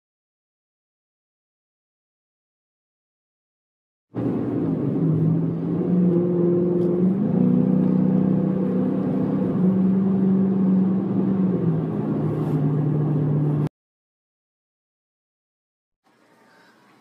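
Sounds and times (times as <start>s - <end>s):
car engine and road noise: 4.1s - 13.7s.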